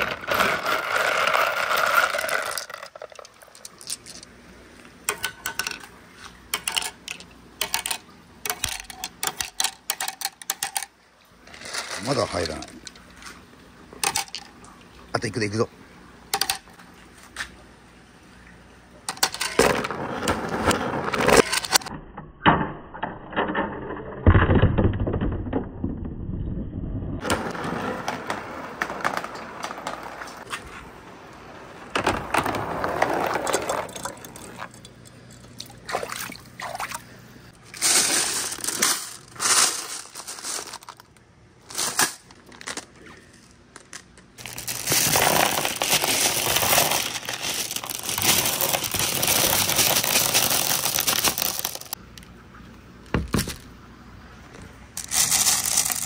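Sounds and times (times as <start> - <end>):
marbles pouring into colander: 0.0 - 4.3, 6.5 - 13.0, 32.3 - 34.8, 37.6 - 42.8, 44.4 - 52.0, 55.0 - 56.0
marbles rolling on wood: 0.0 - 4.3, 5.1 - 13.2, 16.3 - 16.7, 19.1 - 21.9, 23.0 - 35.5, 37.8 - 52.0, 55.0 - 56.0
plastic bag rustling: 11.4 - 13.2, 37.6 - 52.0, 55.0 - 56.0
water splashing: 35.6 - 37.1.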